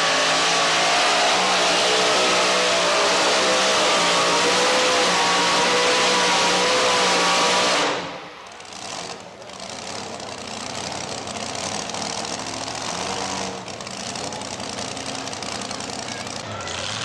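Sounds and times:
truck engine at full throttle: 0.0s - 17.0s
truck engine idling: 8.1s - 17.0s.

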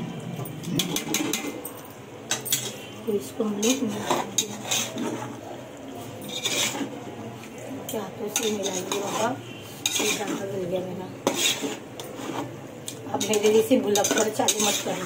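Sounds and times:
spoon stirring and scraping pot: 0.4s - 15.0s
spoon clinking against pot: 0.6s - 5.0s, 7.9s - 9.2s, 9.8s - 10.4s, 12.9s - 15.0s.

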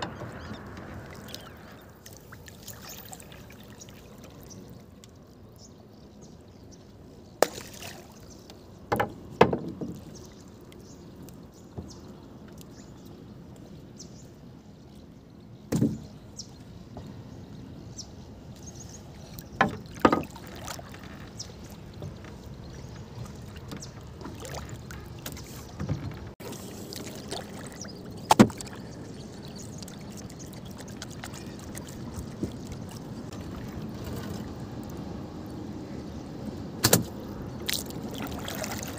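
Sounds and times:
water washing against boat: 0.0s - 5.3s, 7.4s - 13.0s, 18.7s - 38.9s
knocks on wooden boat hull: 8.9s - 10.0s.

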